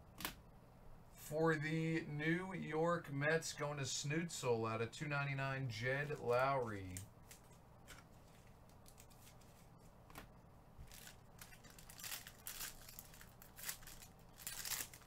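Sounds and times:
foil wrapper crinkling and tearing: 10.8s - 15.0s.

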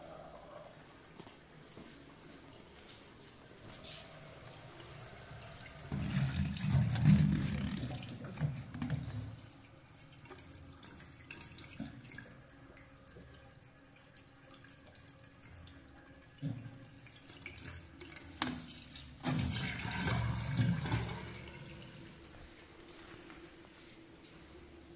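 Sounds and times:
waste water splashing into drain: 5.6s - 22.3s.

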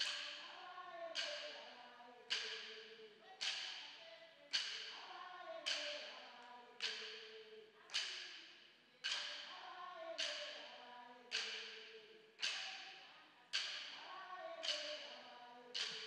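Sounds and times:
woman chanting: 0.0s - 16.0s.

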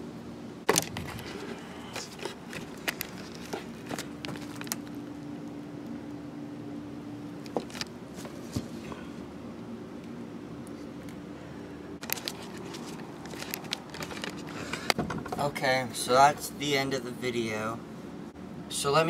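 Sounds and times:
faint steady hum: 0.0s - 19.0s
handling knocks and clicks: 7.4s - 8.7s, 12.0s - 15.5s.

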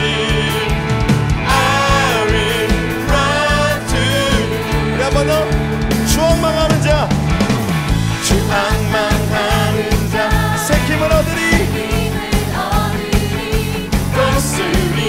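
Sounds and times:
drums: 0.0s - 15.0s
electric bass low notes: 0.0s - 15.0s
worship band playing: 0.0s - 15.0s
singing: 1.5s - 5.3s.

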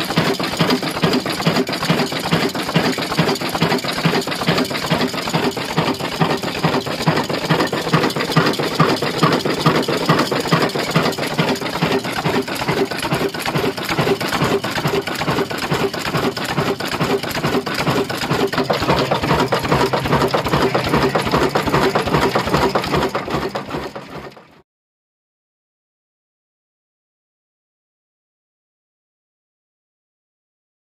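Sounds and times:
stationary engine clattering: 0.0s - 24.6s.

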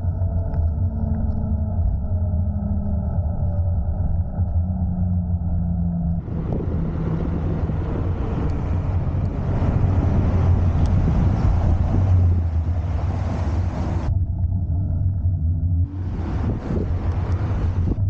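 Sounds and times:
road rumble: 0.0s - 18.0s
wind rushing over microphone: 0.0s - 18.0s.

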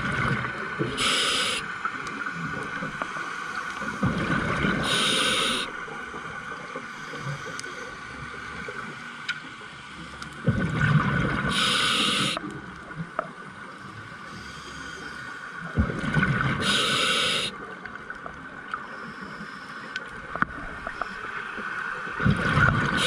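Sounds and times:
exhaled air bubbling underwater: 0.0s - 9.1s, 10.3s - 14.1s, 14.9s - 19.2s, 20.0s - 23.0s
regulator inhalation hiss: 0.8s - 1.8s, 4.8s - 5.8s, 11.5s - 12.4s, 16.6s - 17.6s.

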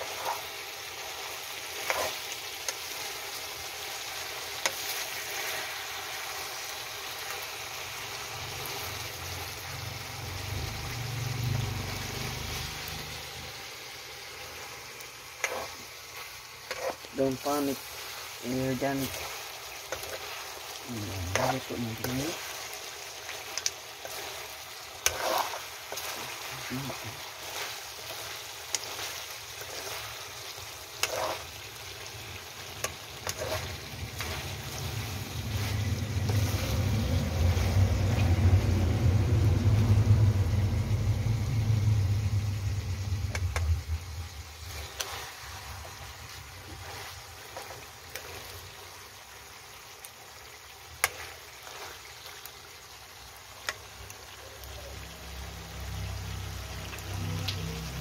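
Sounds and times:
food sizzling in a wok: 0.0s - 58.0s
low rumble: 33.9s - 44.7s.

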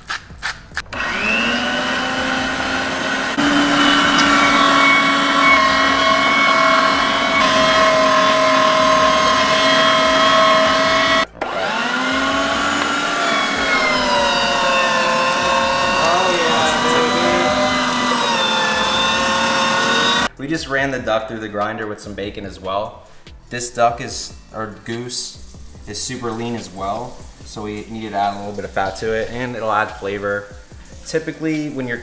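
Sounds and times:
electric meat grinder whine: 0.8s - 20.3s.

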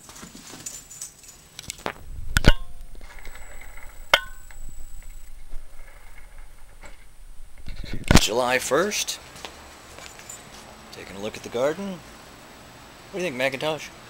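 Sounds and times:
short metallic ring: 2.4s - 7.6s.

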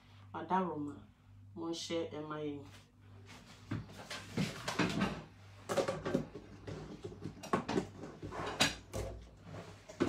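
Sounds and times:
kitchen knocks and clatters: 3.7s - 10.0s.

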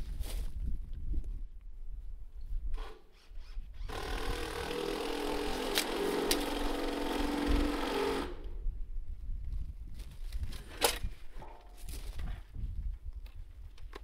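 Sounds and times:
power tool motor running: 2.8s - 8.5s.

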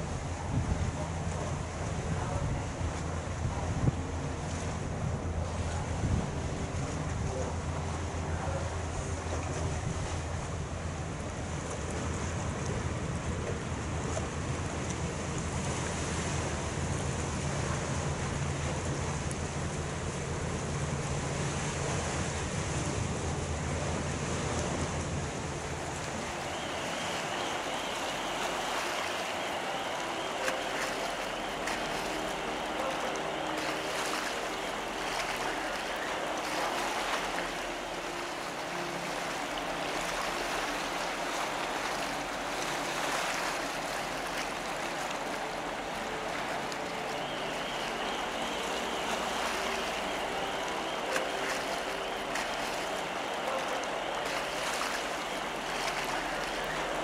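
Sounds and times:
ship engines humming: 0.0s - 57.0s
water rushing along ship hull: 0.0s - 57.0s
faint high whine: 25.5s - 57.0s.

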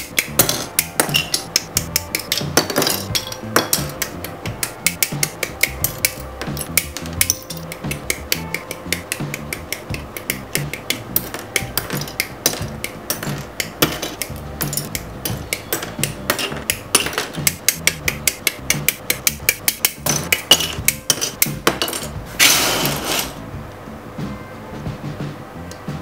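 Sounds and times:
plastic parts rustling and clattering: 2.2s - 4.0s, 20.1s - 23.4s.

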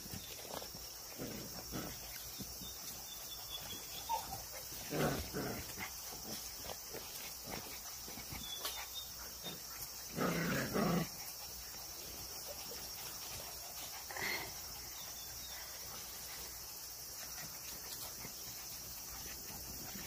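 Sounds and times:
high insect buzz: 0.0s - 20.0s
puppies barking: 3.2s - 5.8s.

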